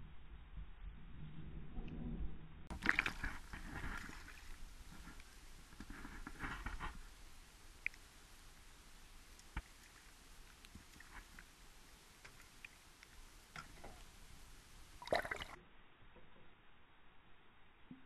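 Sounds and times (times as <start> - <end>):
water splashing: 2.7 - 5.3, 12.2 - 15.6.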